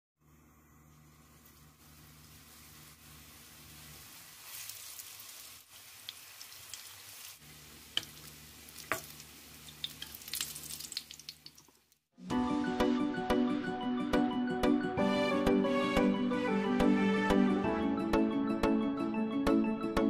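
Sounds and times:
food sizzling in oil: 1.0s - 12.0s.

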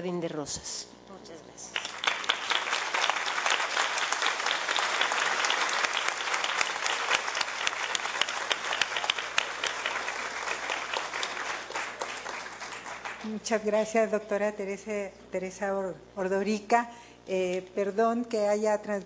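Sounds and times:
audience applauding: 1.7s - 13.4s.

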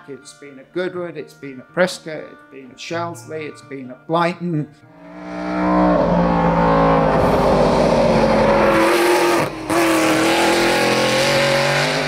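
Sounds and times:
race car engine driving by: 4.9s - 12.0s.

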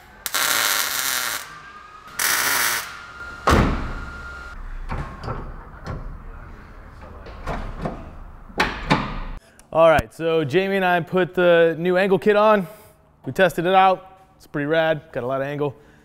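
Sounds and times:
arc welding crackling hiss: 0.0s - 1.5s, 2.2s - 3.0s
loud metallic thunk: 3.4s - 4.0s.

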